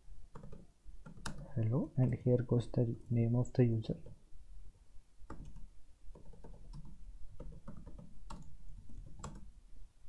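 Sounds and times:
keyboard typing: 0.3s - 1.5s, 5.2s - 9.5s.

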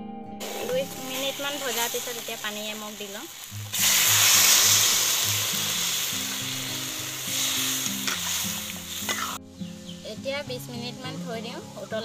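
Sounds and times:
water sizzling in hot oil: 0.4s - 9.4s.

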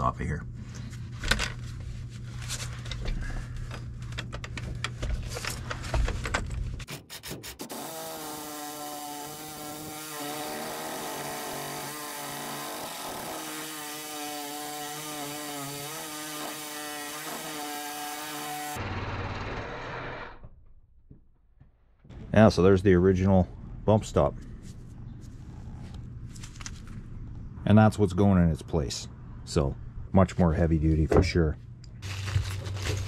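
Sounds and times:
reciprocating saw cutting metal: 6.9s - 20.4s.

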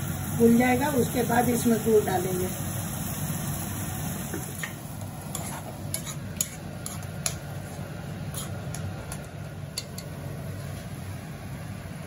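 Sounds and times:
spoon scraping metal pan: 5.2s - 8.9s.

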